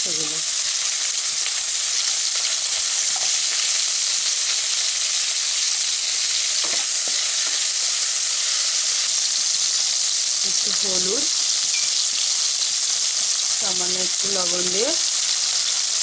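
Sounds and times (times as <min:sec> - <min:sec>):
vegetables sizzling in hot oil: 0:00.0 - 0:16.0.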